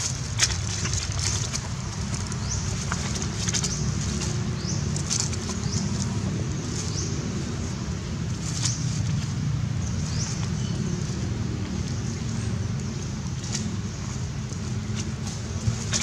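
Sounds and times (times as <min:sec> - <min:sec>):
birds chirping: 0:00.0 - 0:16.0
steady low rumble: 0:00.0 - 0:16.0.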